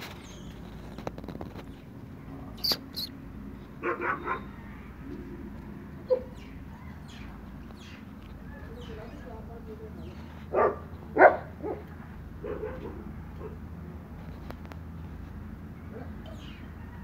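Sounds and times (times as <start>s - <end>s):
dog barking: 3.8s - 4.6s, 6.1s - 6.4s, 10.5s - 13.6s.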